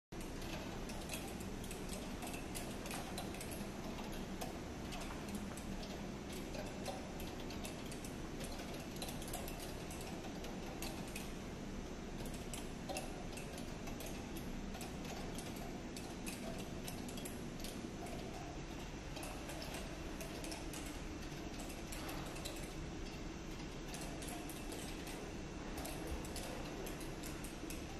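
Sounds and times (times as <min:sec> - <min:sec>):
relay clicks: 0:00.2 - 0:27.9
steady low hum: 0:00.2 - 0:27.9.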